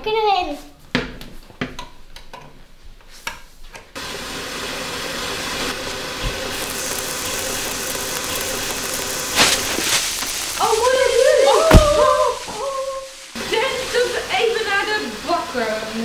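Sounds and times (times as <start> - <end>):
stand mixer motor whirring: 4.0 - 9.8.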